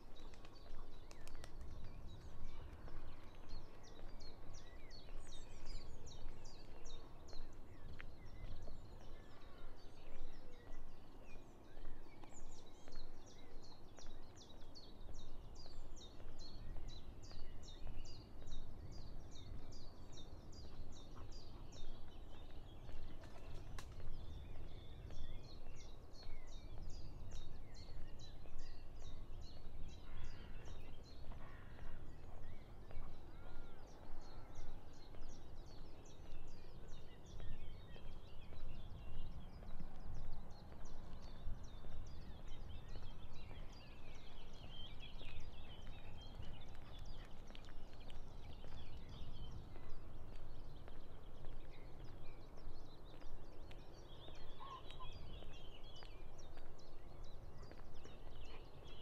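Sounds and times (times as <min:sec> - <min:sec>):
faint bird chirps: 0:54.4 - 0:56.0.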